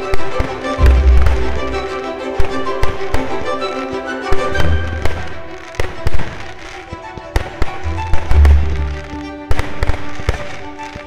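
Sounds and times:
fireworks bangs and cracks: 0.0s - 1.8s, 2.4s - 3.5s, 4.4s - 11.0s
music: 0.0s - 11.0s
low rumbling boom: 0.8s - 1.8s.

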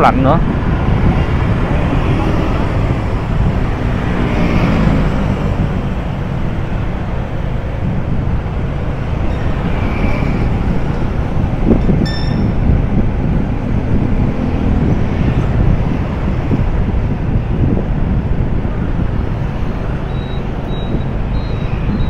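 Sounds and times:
city street traffic: 0.0s - 22.0s
wind rumble on microphone: 0.0s - 22.0s
high-pitched beep: 12.0s - 12.6s, 20.1s - 22.0s.

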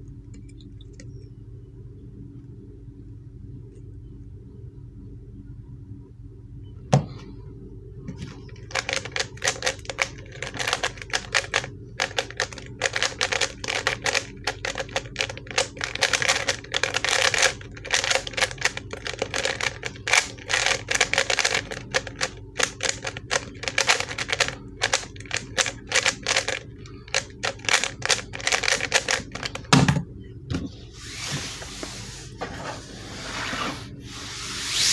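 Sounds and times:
plastic puzzle cube clicking: 8.7s - 29.6s
brushing rubbing sound: 31.0s - 34.9s.

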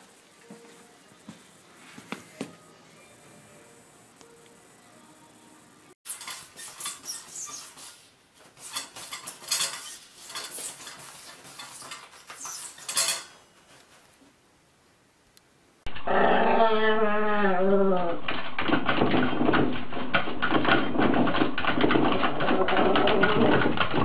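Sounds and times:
toilet paper rustling: 6.1s - 14.2s.

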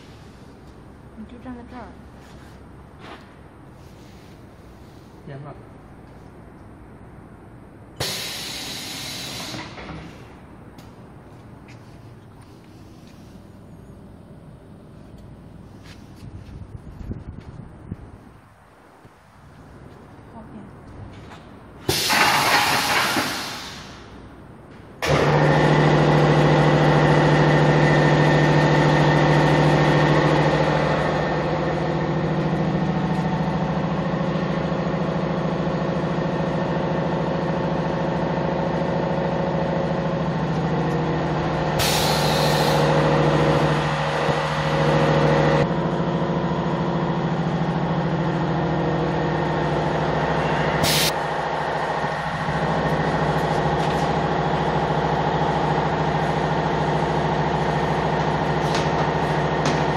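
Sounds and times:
pneumatic air hisses: 8.0s - 9.8s, 21.9s - 24.1s, 41.8s - 42.9s, 50.8s - 51.1s.

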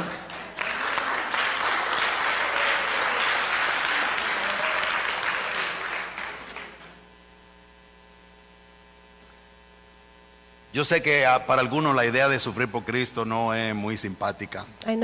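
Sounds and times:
congregation applauding: 0.0s - 7.1s
faint mains hum: 0.0s - 15.0s.

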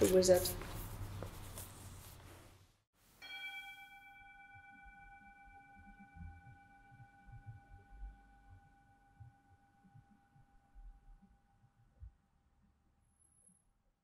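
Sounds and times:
bell ringing: 3.2s - 8.4s.

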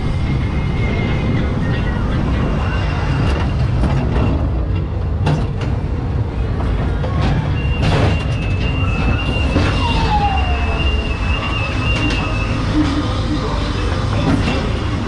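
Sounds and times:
ride car rumbling on track: 0.0s - 15.0s
bang through doors: 7.1s - 10.1s.

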